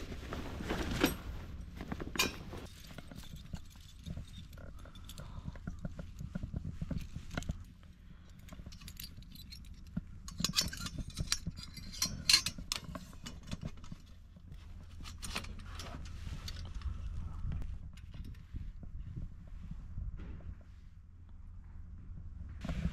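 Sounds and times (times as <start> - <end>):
low steady rumble: 0.0 - 22.9
sheet metal parts clinking: 8.6 - 14.0.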